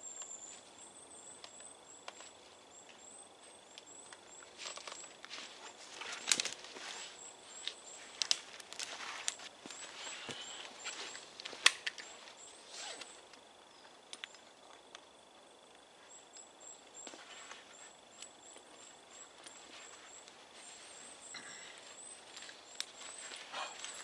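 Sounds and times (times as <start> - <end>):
fabric rustling: 4.6 - 13.1
faint high bird call: 9.8 - 11.2.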